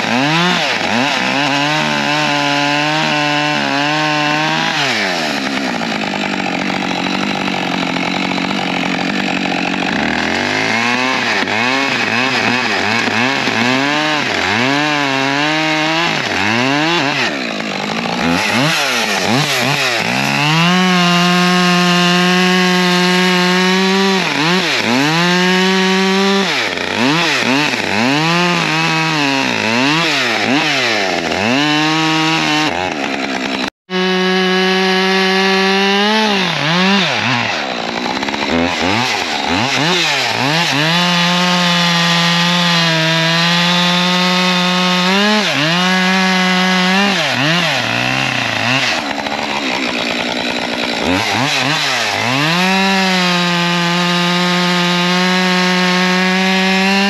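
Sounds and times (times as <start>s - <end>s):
chainsaw revving: 0.0s - 57.0s.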